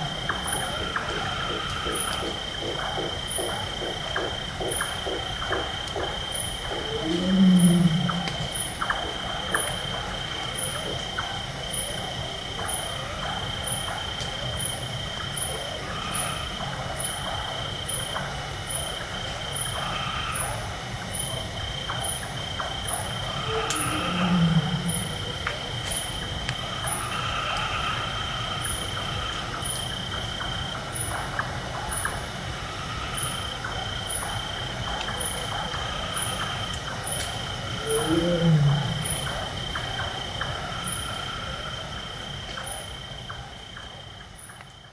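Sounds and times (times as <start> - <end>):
night forest ambience: 0.0 - 44.9
tiger roaring: 6.7 - 8.6, 23.2 - 25.6, 37.7 - 40.0.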